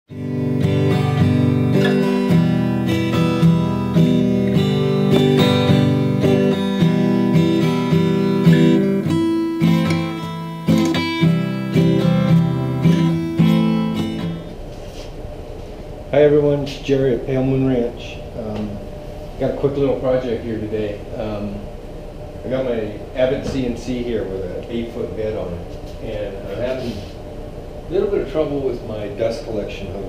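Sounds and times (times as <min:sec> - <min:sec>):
acoustic guitar strumming chords: 0:00.1 - 0:15.3.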